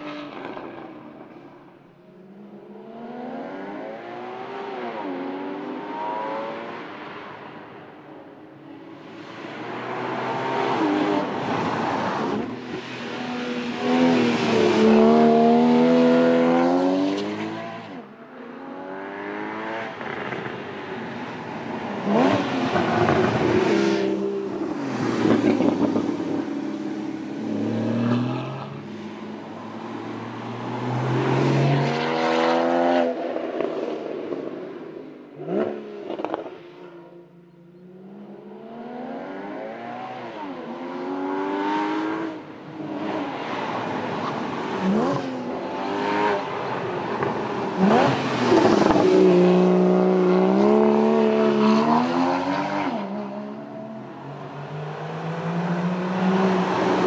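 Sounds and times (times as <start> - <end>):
car engine revving through gears: 47.8 - 53.4.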